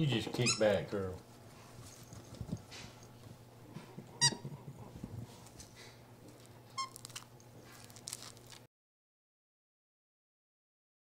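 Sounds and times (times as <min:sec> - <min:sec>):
monkey squeak: 0:00.4 - 0:00.8, 0:06.8 - 0:07.2
soft rustling: 0:01.1 - 0:03.9.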